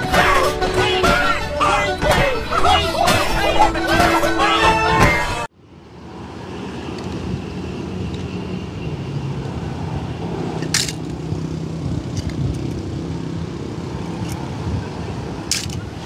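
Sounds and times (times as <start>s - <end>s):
film music: 0.0s - 5.5s.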